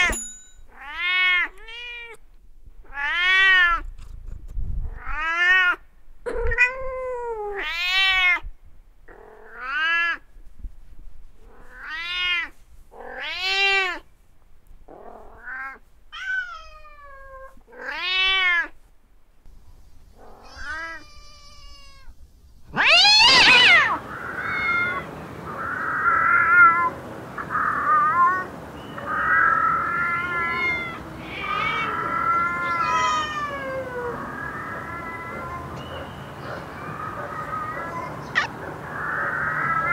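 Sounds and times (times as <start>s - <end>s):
cats meowing: 0.8s - 2.2s, 2.9s - 3.9s, 11.5s - 14.0s, 15.0s - 18.7s, 20.2s - 39.9s
cat yowling: 15.1s - 18.7s, 20.2s - 22.1s, 22.7s - 39.9s.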